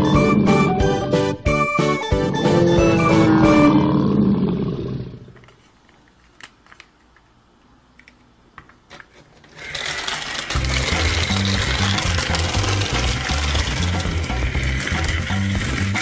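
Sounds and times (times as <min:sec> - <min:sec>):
plastic toy clicks: 0:08.9 - 0:16.0
toy car motor whirring: 0:09.4 - 0:16.0.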